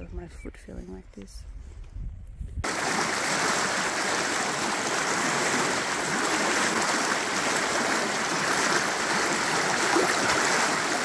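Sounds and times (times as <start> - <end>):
creek rushing: 2.6 - 11.0.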